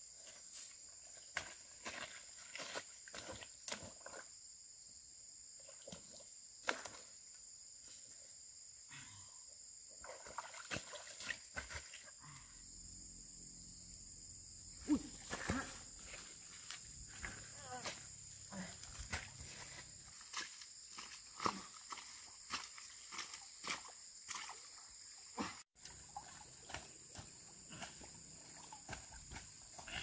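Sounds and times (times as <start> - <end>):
high-pitched insect chorus: 0.0 - 30.0
rustles: 14.8 - 21.6.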